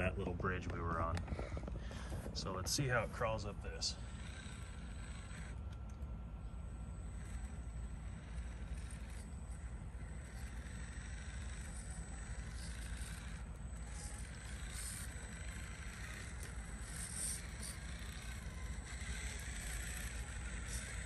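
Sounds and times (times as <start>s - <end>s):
rc car motor running: 0.0s - 21.0s.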